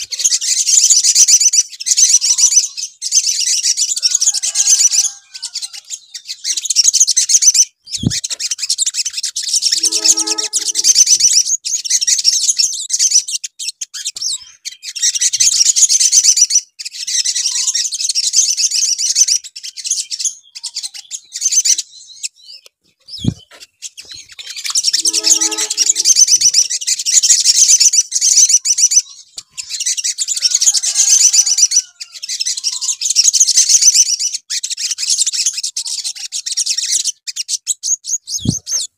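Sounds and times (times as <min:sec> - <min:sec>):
bird twittering trills: 0:07.9 - 0:12.4, 0:19.2 - 0:34.3, 0:37.9 - 0:38.9.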